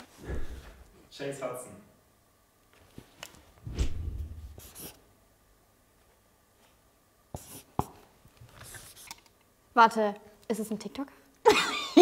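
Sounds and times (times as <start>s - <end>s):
marker scratching on paper: 4.5s - 5.0s, 7.4s - 8.0s, 8.6s - 9.2s.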